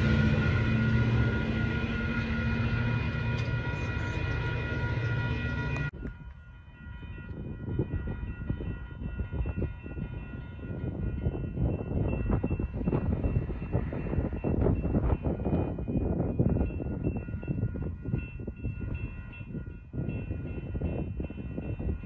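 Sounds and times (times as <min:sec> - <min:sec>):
train horn chord: 0:00.0 - 0:06.4
gusty wind on microphone: 0:05.9 - 0:22.0.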